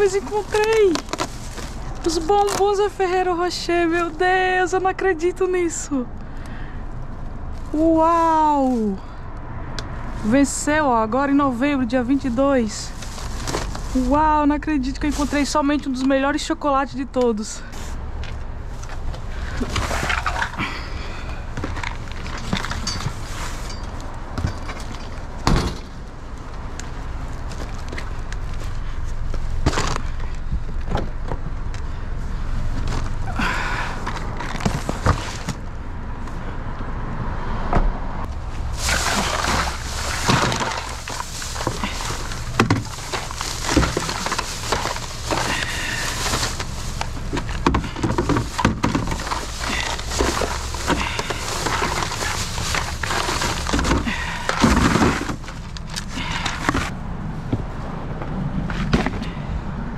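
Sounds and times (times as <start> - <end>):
plastic bags rustling and crinkling: 0.0 - 4.6, 10.0 - 16.6, 17.6 - 30.4, 32.6 - 35.7, 38.3 - 56.9
bottles and containers clattering: 12.7 - 14.3, 18.8 - 25.9, 38.6 - 56.9.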